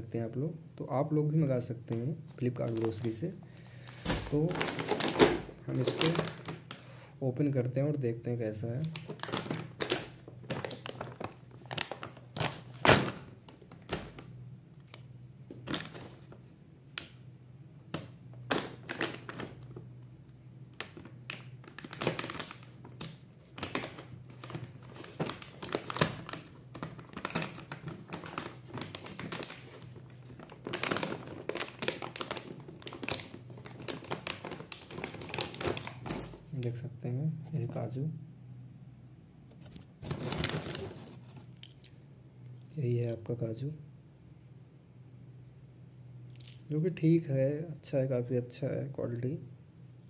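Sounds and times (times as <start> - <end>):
plastic packaging crinkling: 1.9 - 7.1, 8.7 - 17.2, 17.9 - 36.7, 39.5 - 41.9.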